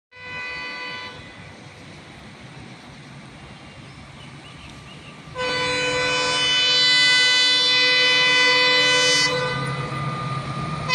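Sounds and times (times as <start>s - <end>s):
locomotive horn blast: 0.1s - 1.4s, 5.3s - 10.9s.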